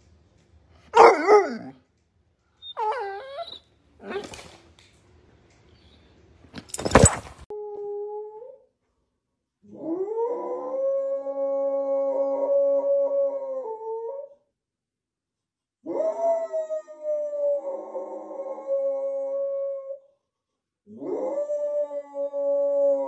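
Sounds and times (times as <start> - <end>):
puppy baying: 2.6 - 4.5
dog howling: 2.7 - 4.4.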